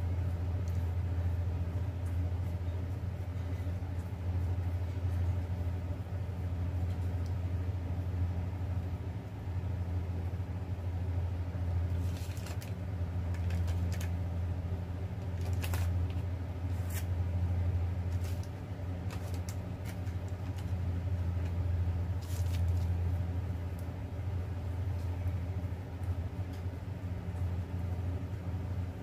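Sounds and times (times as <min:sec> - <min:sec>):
low mechanical hum: 0:00.0 - 0:29.0
paper crinkles and taps: 0:11.9 - 0:14.2, 0:15.2 - 0:17.1, 0:18.1 - 0:21.6.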